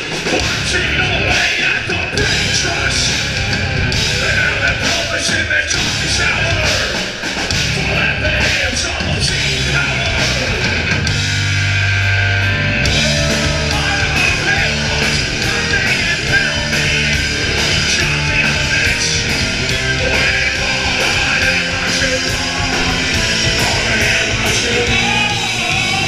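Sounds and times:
heavy rock band playing: 0.0 - 26.0
person singing: 12.8 - 26.0.

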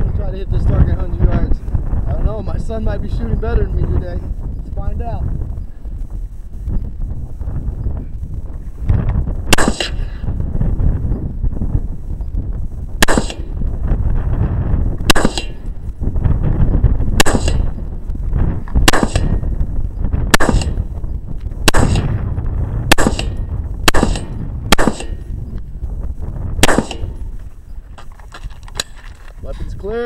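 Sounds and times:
wind buffeting microphone: 0.0 - 30.0
rifle shots: 9.5 - 10.2, 13.0 - 13.6, 15.1 - 15.8, 17.1 - 17.8, 18.8 - 19.6, 20.3 - 21.0, 21.6 - 22.2, 22.8 - 25.4, 26.6 - 27.4.

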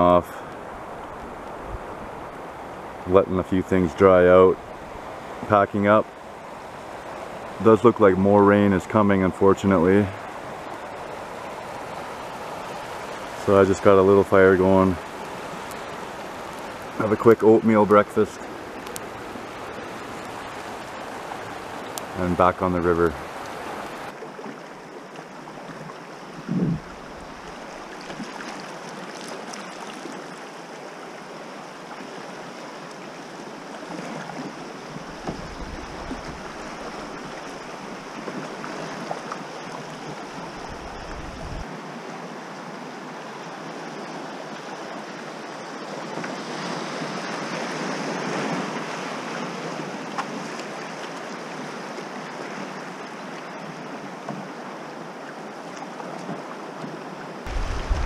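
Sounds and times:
wind rumbling on microphone: 0.0 - 5.8, 25.8 - 28.1, 34.4 - 39.0, 39.9 - 41.7, 57.5 - 58.0
river current rushing: 0.0 - 58.0.

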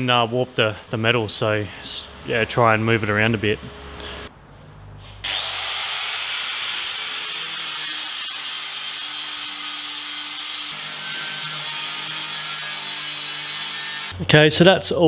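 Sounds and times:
angle grinder grinding metal: 5.3 - 14.2.

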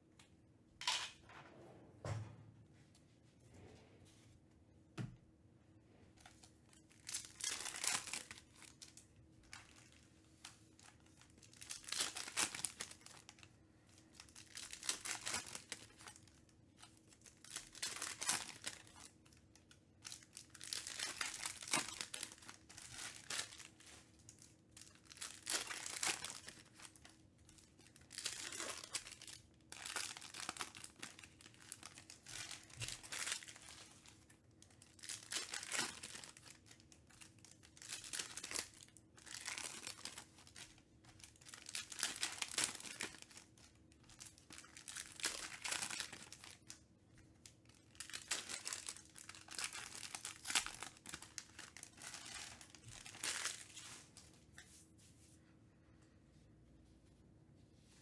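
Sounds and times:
foil wrappers crinkling and tearing: 6.3 - 54.3.

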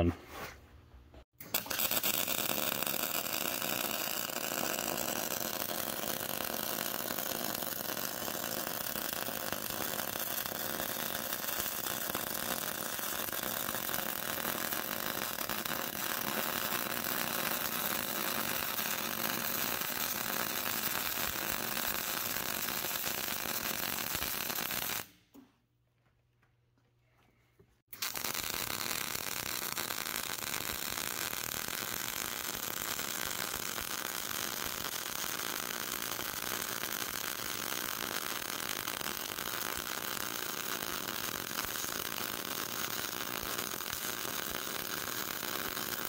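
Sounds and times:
welding arc crackling: 1.4 - 25.2, 27.9 - 46.0.

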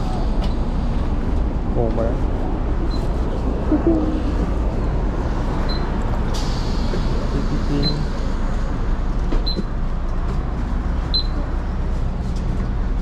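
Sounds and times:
bus engine idling: 0.0 - 13.0
sharp air hiss: 6.3 - 8.2
short high beeps: 11.1 - 11.4.

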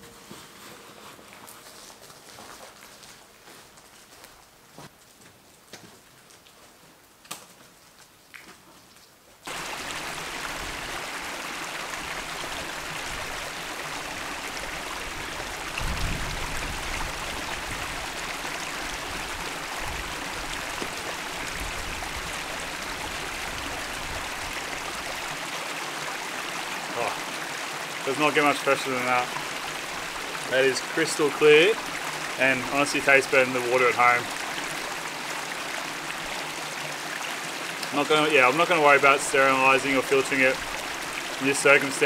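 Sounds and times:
creek trickling: 9.4 - 42.0.

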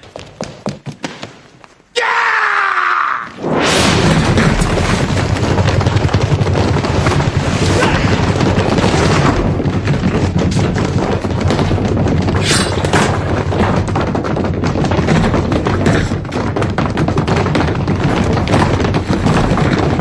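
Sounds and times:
man yelling: 1.9 - 3.4.

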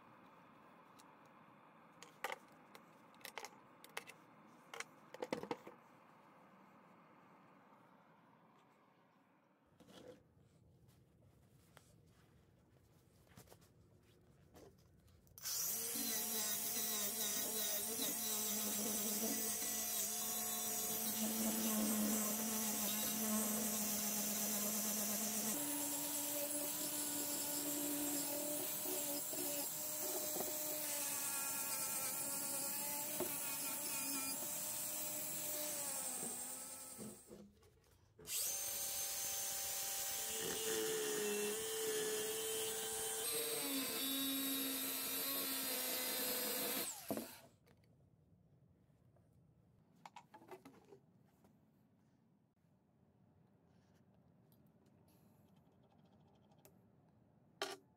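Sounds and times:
angle grinder on metal: 15.4 - 37.2, 38.3 - 47.4
angle grinder on wood: 15.4 - 37.3, 38.3 - 47.4.

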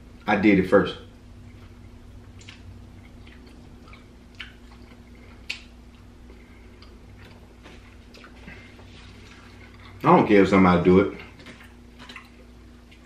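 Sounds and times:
man chewing food: 1.1 - 10.1, 11.1 - 13.0.

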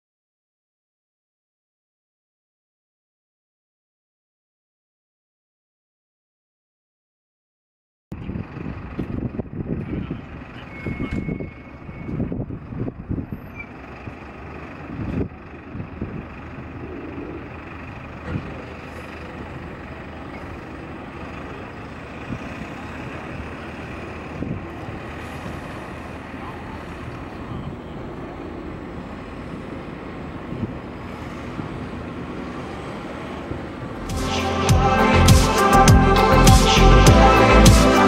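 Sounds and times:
high engine whine: 8.1 - 38.0
low rumble gusts: 8.1 - 38.0
turboprop engines droning: 8.2 - 37.7.

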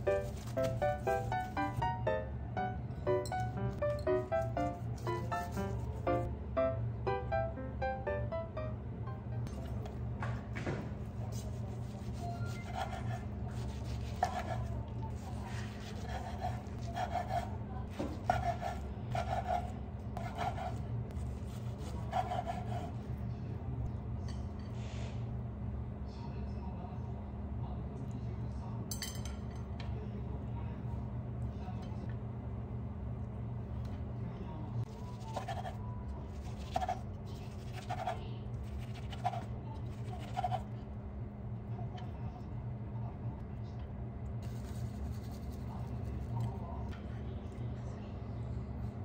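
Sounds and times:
low hum: 0.0 - 17.8
knife sawing through food roll: 11.4 - 23.0.

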